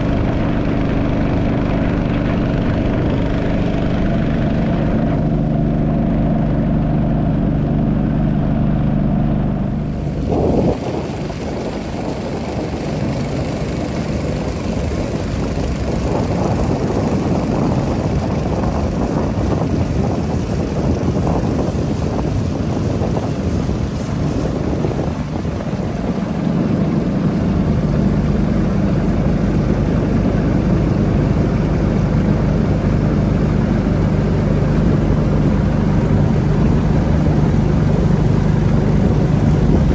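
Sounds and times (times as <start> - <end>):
rushing noise: 0.0 - 13.2
motorboat engine running: 0.0 - 39.9.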